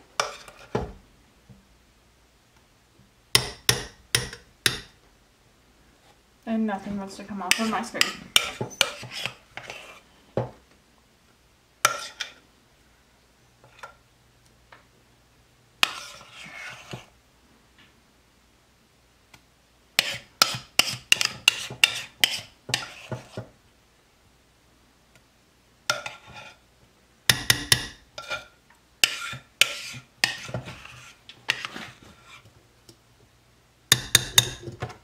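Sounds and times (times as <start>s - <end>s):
metal spoon scraping bowl: 0.2s - 0.7s, 7.5s - 10.0s, 11.9s - 12.4s, 15.8s - 17.1s, 20.0s - 23.4s, 25.9s - 26.6s, 27.4s - 32.5s.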